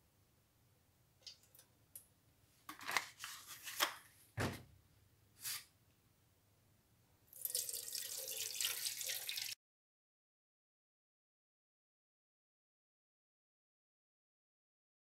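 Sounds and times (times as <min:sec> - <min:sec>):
liquid splashing in tin can: 0:07.3 - 0:09.6
water pouring into can: 0:07.3 - 0:09.6.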